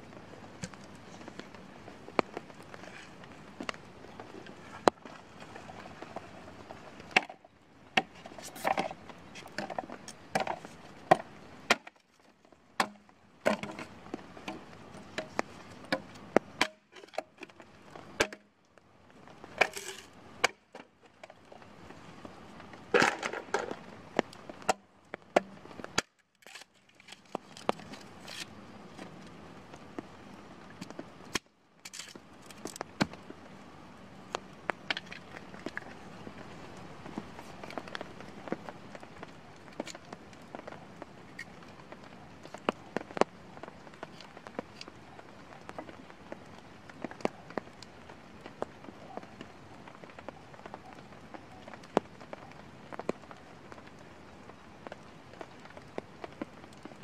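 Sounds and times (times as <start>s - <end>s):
hatchet chopping bamboo: 12.8s - 13.8s.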